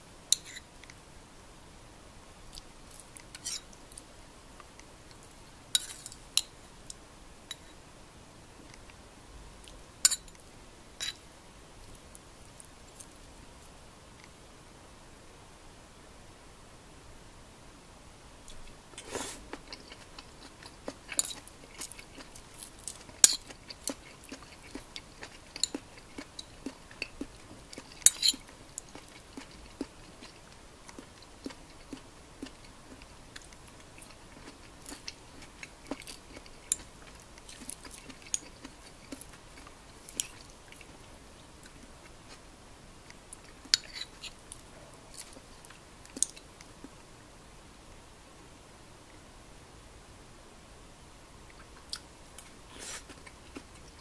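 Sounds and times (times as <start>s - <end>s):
faint hiss: 0.0s - 19.6s, 39.4s - 53.2s
chewing: 18.5s - 42.4s, 51.5s - 54.0s.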